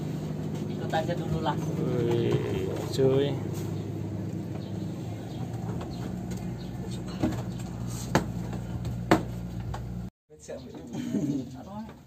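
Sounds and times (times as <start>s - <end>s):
boat engine humming: 0.0s - 10.1s
sharp knocks: 7.1s - 9.4s.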